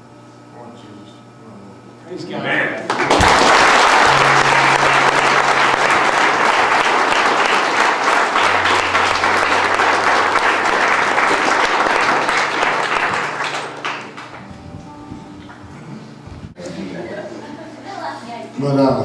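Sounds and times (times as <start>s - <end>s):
audience applauding: 2.8s - 14.6s.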